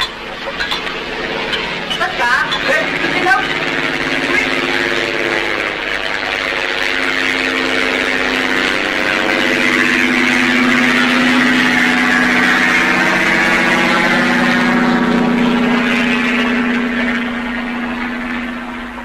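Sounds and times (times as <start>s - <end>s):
motor engine drone: 0.0s - 19.0s.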